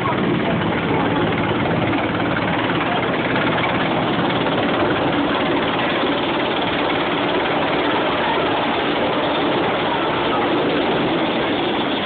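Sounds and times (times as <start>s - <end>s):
helicopter rotors and turbines: 0.0s - 12.0s.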